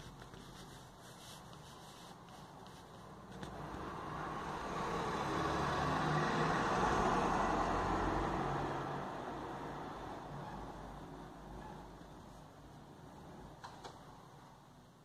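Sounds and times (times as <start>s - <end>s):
car passing by: 3.5s - 10.6s.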